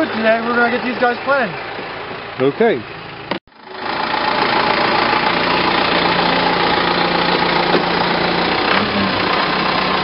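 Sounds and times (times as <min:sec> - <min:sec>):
tractor engine running: 0:00.0 - 0:10.0.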